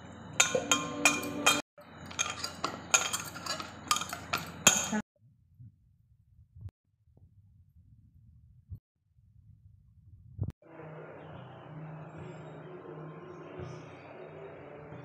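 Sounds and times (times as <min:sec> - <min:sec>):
bangles and steel bowl clinking: 0:00.4 - 0:05.0.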